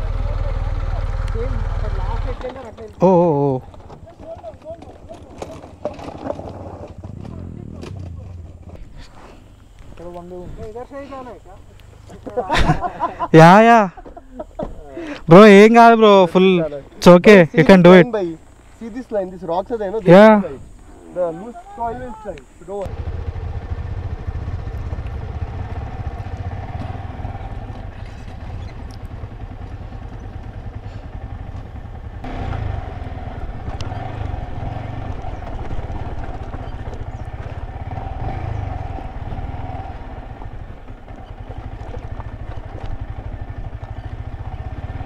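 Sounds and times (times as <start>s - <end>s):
motorcycle engine running: 0.0s - 8.9s, 22.8s - 45.0s.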